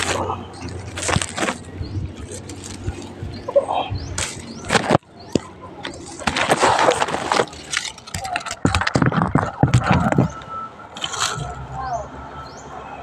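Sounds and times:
dry leaves rustling and scraping: 0:00.0 - 0:11.6
sharp clicks and knocks: 0:04.1 - 0:11.5.

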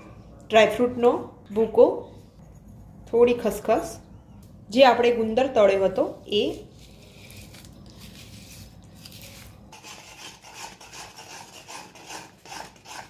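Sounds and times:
spatula scraping an iron pan: 0:09.7 - 0:13.0.

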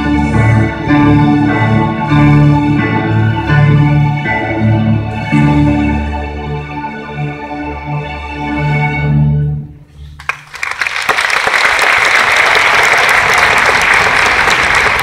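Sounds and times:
string orchestra chord: 0:00.0 - 0:09.9
crowd applause: 0:10.2 - 0:15.0.

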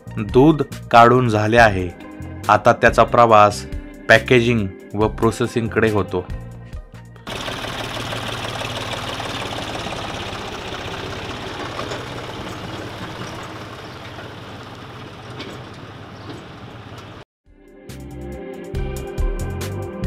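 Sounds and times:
tractor diesel engine running: 0:07.3 - 0:17.2.

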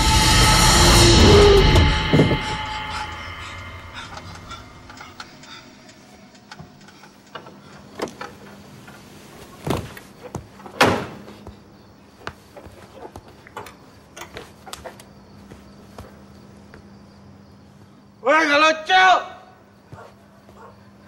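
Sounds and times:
loud thuds: 0:01.3 - 0:02.8, 0:09.6 - 0:11.7
scattered knocks and clicks: 0:04.2 - 0:09.0.

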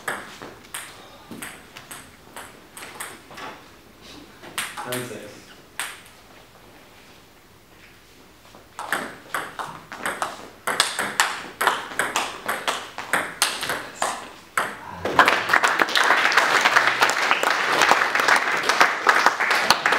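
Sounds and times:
applause: 0:15.1 - 0:19.9.

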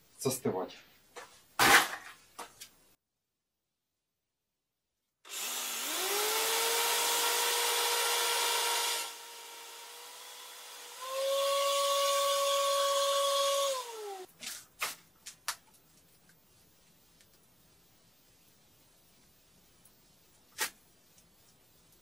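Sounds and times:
cordless drill grinding into brick: 0:05.3 - 0:14.3.

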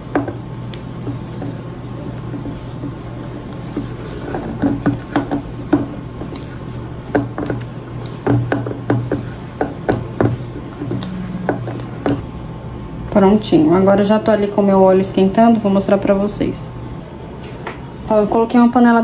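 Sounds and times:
spoon stirring batter: 0:00.1 - 0:12.2.

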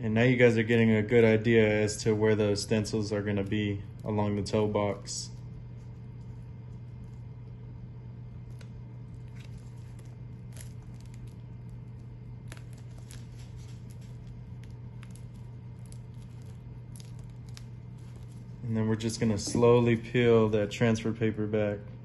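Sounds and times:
steady low hum: 0:00.0 - 0:22.0
paper crinkling: 0:08.3 - 0:20.1.

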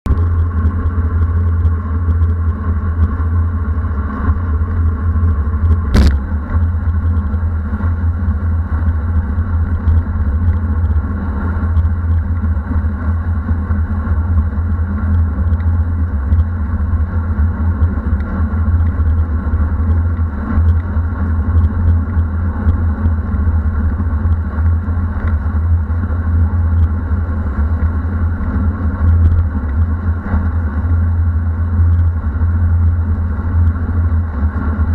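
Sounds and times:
road noise: 0:00.0 - 0:34.9
sharp click: 0:05.9 - 0:06.2.

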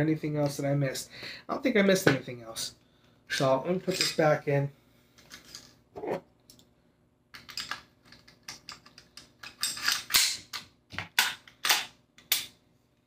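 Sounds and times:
metal clicks of gun parts: 0:07.4 - 0:12.5.

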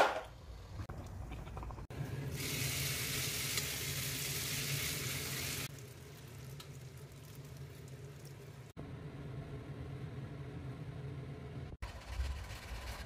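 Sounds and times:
food sizzling in a frying pan: 0:02.2 - 0:08.7.

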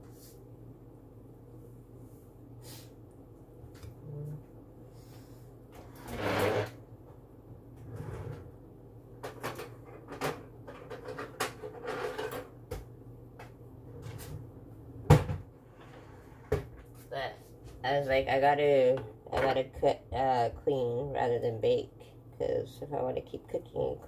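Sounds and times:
rustling scrape: 0:05.8 - 0:06.8.

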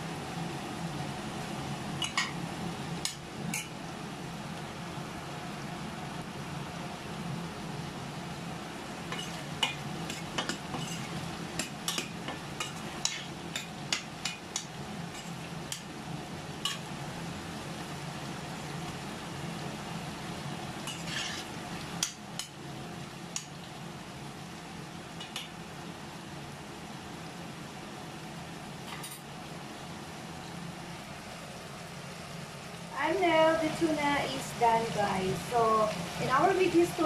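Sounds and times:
metal spoon scraping a pan: 0:09.1 - 0:15.9, 0:16.6 - 0:16.8, 0:20.8 - 0:22.6.

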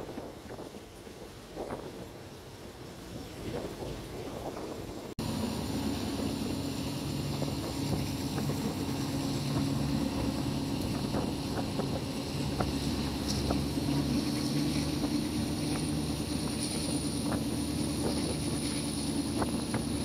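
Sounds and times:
wind on microphone: 0:00.0 - 0:20.0
running gear rumble: 0:03.2 - 0:20.0
train engine drone: 0:04.8 - 0:20.0.

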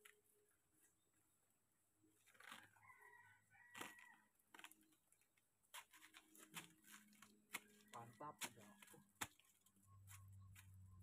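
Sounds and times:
faint rooster crowing: 0:02.4 - 0:04.4
banana trunk snapping apart: 0:03.7 - 0:04.8.

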